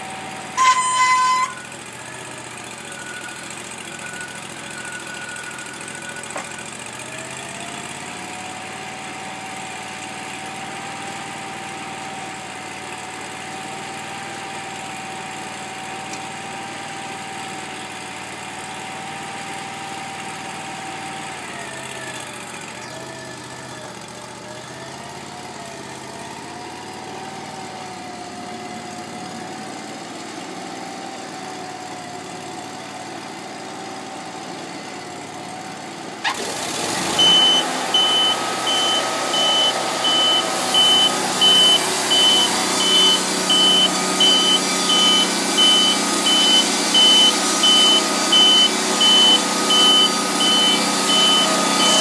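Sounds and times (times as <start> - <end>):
sawmill engine idling: 0.0 - 19.1, 21.3 - 52.0
thin steady whine: 37.2 - 52.0.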